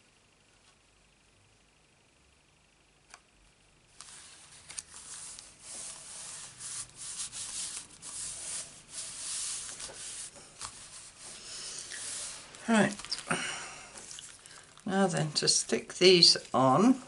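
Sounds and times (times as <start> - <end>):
papery swishes: 4.0 - 13.3.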